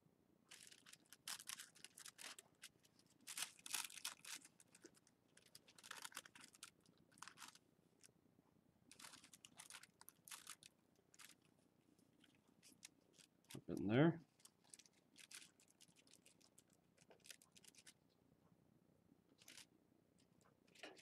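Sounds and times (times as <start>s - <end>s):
tissue paper rustling and crinkling: 0.5s - 7.6s, 8.9s - 11.5s, 14.2s - 18.0s, 19.4s - 19.7s.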